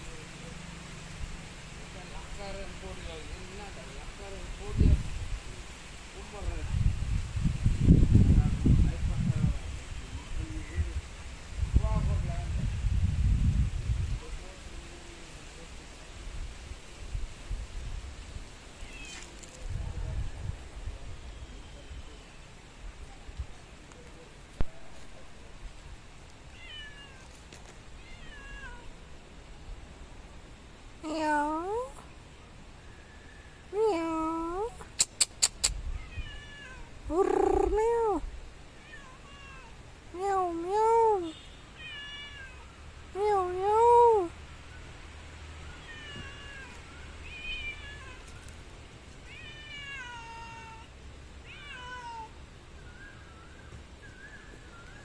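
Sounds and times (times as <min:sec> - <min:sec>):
cat meowing: 0:18.8 - 0:19.4, 0:26.5 - 0:27.4, 0:28.0 - 0:29.0, 0:35.9 - 0:38.2, 0:38.8 - 0:39.8, 0:41.2 - 0:42.7, 0:45.7 - 0:48.4, 0:49.2 - 0:52.4.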